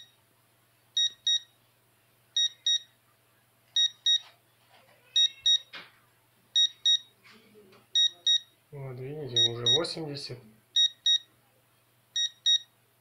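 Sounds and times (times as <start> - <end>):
meter alarm double beep: 1.0 - 1.5, 2.4 - 2.9, 6.6 - 7.1, 8.0 - 8.5, 9.4 - 9.8, 10.8 - 11.3, 12.2 - 12.7.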